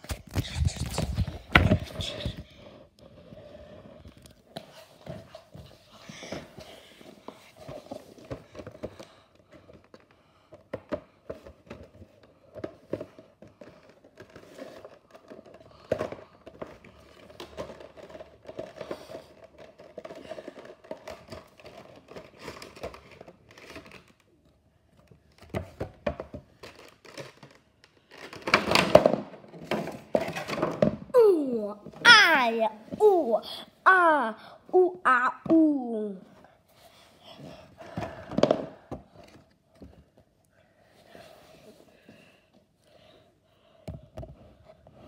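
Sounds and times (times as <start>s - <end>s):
cardboard and plastic crinkling: 11.2s - 31.0s.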